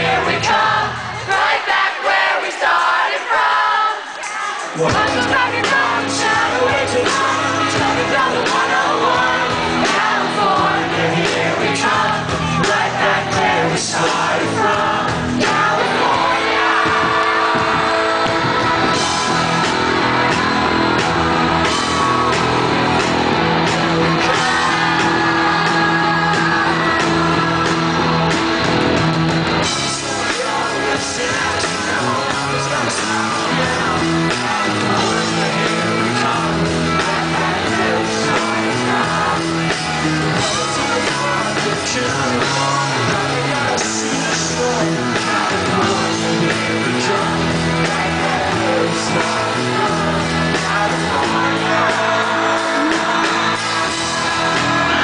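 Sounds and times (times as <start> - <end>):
live rock band playing: 0.0 - 1.5, 4.2 - 55.0
male singer singing loudly: 4.5 - 20.5, 29.8 - 55.0.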